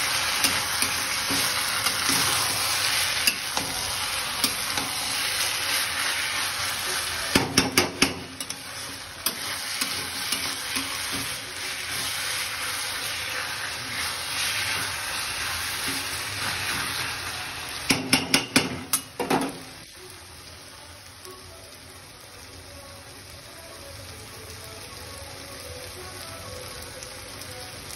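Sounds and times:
spatula stirring in pan: 0:00.0 - 0:18.7
onions sizzling in oil: 0:00.0 - 0:27.9
spatula knocking against pan: 0:17.9 - 0:19.4.

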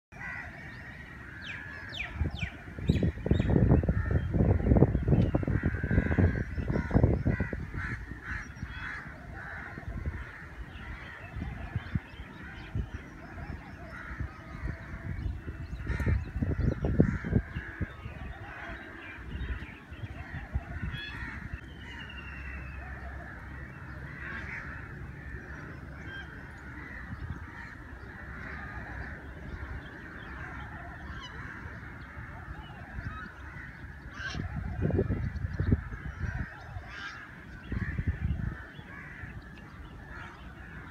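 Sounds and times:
many birds chattering: 0:00.1 - 0:40.9.

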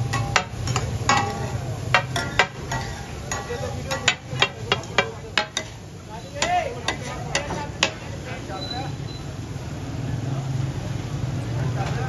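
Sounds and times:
metal spatula scraping griddle: 0:00.0 - 0:08.6
chicken sizzling: 0:00.0 - 0:12.0.

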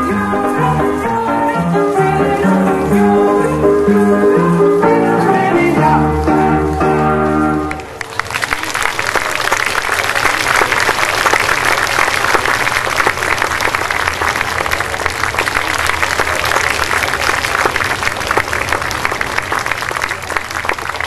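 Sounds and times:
folk dance music: 0:00.0 - 0:21.0
audience applauding: 0:06.7 - 0:21.0.

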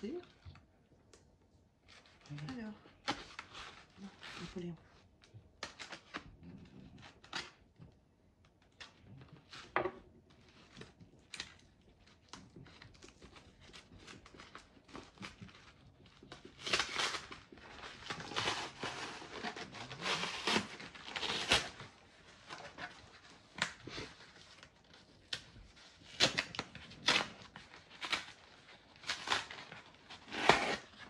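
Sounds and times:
cardboard ripping: 0:05.6 - 0:07.6, 0:10.4 - 0:31.0.

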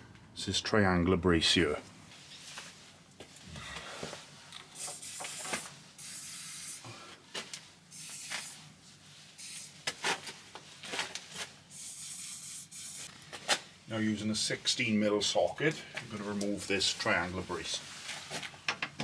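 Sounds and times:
aerosol spray can hissing: 0:04.8 - 0:06.8, 0:07.9 - 0:08.6, 0:09.4 - 0:09.8, 0:11.7 - 0:13.1.

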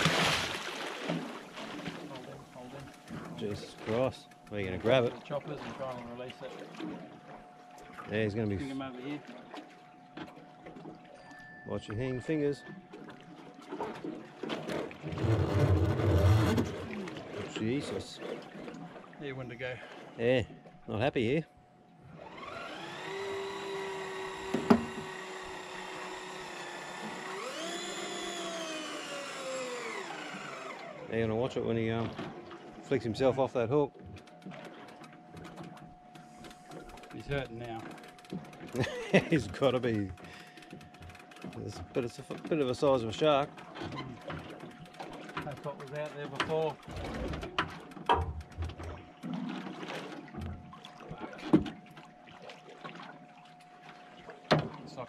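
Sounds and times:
shark splashing at water surface: 0:00.0 - 0:02.8
fishing reel motor whining: 0:14.7 - 0:18.2, 0:22.1 - 0:50.6
knocks against boat hull: 0:24.5 - 0:25.1.

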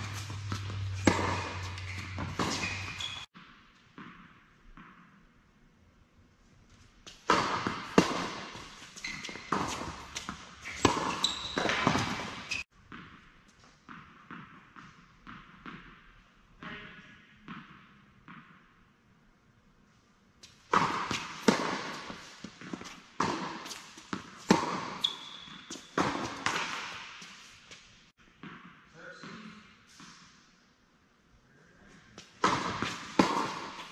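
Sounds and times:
tennis balls bouncing on court: 0:00.0 - 0:05.3, 0:07.1 - 0:18.8, 0:20.4 - 0:30.2, 0:32.2 - 0:33.9
tennis balls struck by racquets: 0:00.0 - 0:05.3, 0:07.1 - 0:18.8, 0:20.5 - 0:30.4, 0:32.2 - 0:33.9.

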